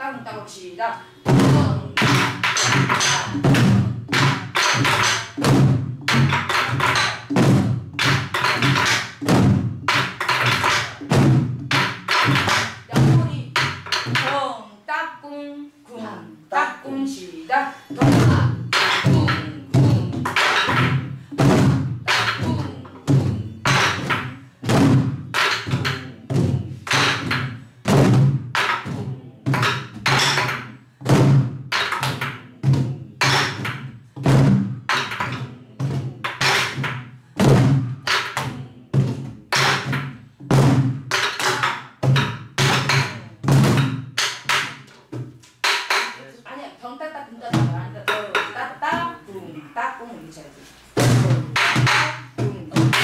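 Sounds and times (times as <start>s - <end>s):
deep thuds on drumheads: 18.0s - 46.1s, 51.0s - 53.0s.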